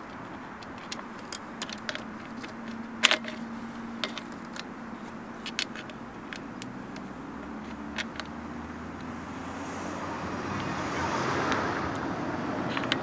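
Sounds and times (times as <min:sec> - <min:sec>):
metal parts clicking and rattling: 0:00.0 - 0:08.3, 0:12.7 - 0:13.0.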